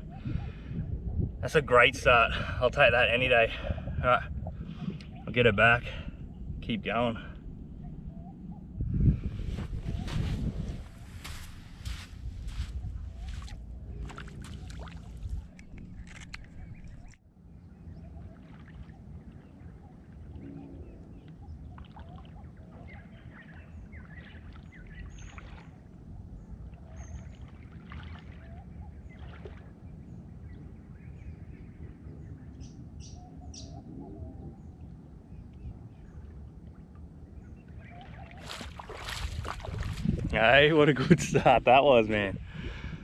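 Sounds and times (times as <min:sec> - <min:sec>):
faint bird chirps: 0:07.7 - 0:08.8, 0:28.3 - 0:36.4
shallow water lapping: 0:09.1 - 0:30.5, 0:35.9 - 0:41.8.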